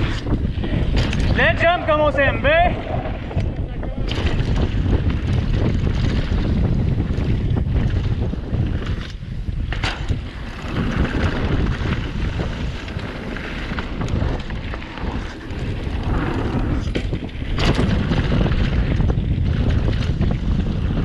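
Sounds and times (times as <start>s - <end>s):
tyres rumbling on dirt trail: 0.0s - 21.0s
wind on microphone: 0.0s - 21.0s.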